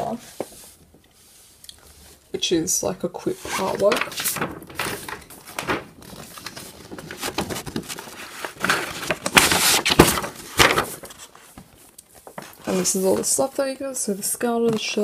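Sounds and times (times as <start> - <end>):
paper rustling: 3.3 - 13.7
paper crackles: 3.4 - 13.6.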